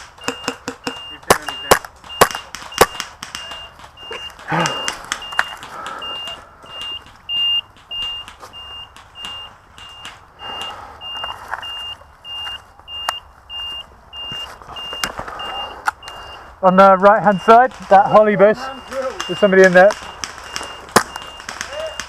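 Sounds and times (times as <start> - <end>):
sharp clicks: 0.0 - 11.6, 17.5 - 22.0
high electronic beeps: 0.1 - 22.0.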